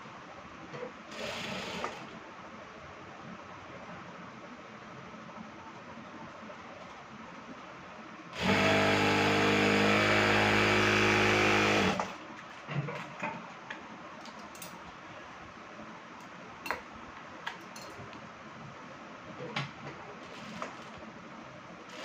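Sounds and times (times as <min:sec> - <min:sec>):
sewing machine running: 0:01.1 - 0:02.0, 0:08.4 - 0:12.2.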